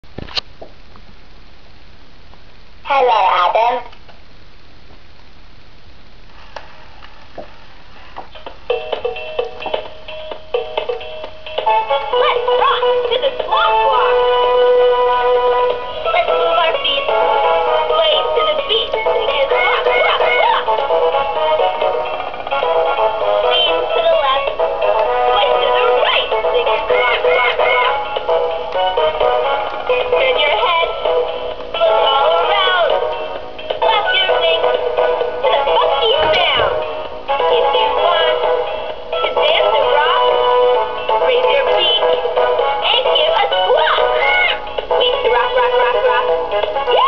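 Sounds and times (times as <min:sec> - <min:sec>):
toy singing through speaker: 0:11.8 - 0:14.4, 0:16.0 - 0:22.0, 0:23.4 - 0:28.4, 0:29.6 - 0:33.1, 0:33.8 - 0:47.0
toy bird singing synthesized voice: 0:25.3 - 0:28.1, 0:37.4 - 0:38.6.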